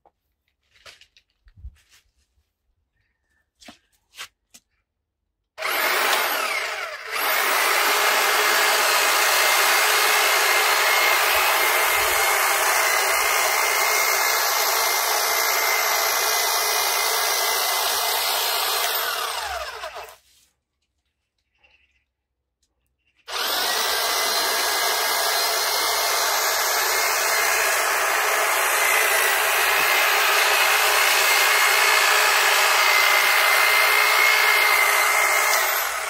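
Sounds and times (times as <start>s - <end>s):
hedge trimmer motor whining: 5.6s - 20.2s, 23.2s - 36.0s.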